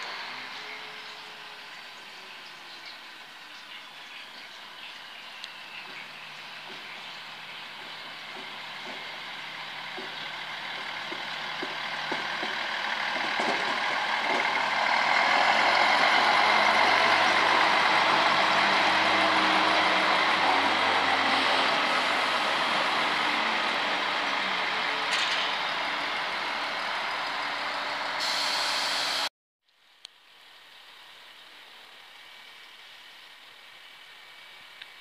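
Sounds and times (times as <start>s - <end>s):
diesel engine hum: 0.0s - 29.3s
train wheels clicking over rail joints: 5.8s - 17.7s, 23.7s - 27.8s.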